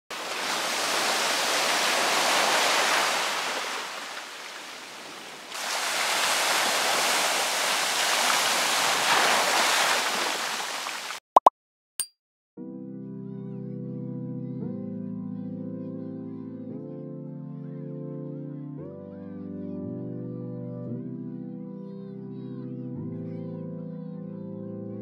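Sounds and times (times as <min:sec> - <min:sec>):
waves washing over ice: 0:00.1 - 0:11.2.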